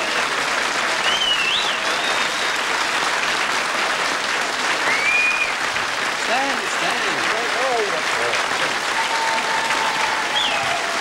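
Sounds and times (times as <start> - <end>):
audience applauding: 0.0 - 11.0
high whistle: 1.0 - 2.6, 4.9 - 5.5, 9.0 - 11.0.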